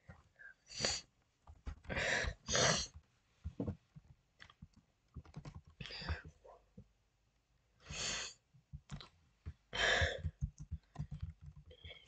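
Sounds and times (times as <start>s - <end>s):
person breathing close to microphone: 1.8s - 3.0s, 7.8s - 8.4s, 9.7s - 11.1s.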